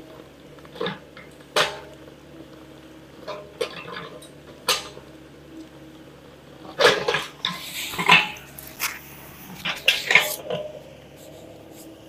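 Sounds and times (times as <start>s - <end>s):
excavator diesel engine running: 0.0s - 12.0s
metallic clanks of bucket: 0.7s - 1.9s, 3.2s - 5.0s, 6.7s - 10.8s.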